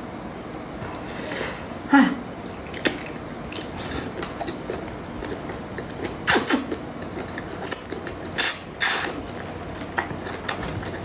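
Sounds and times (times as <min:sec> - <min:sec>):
loud wet eating sounds: 0:00.5 - 0:11.0
chewing rubbery food: 0:02.5 - 0:11.0.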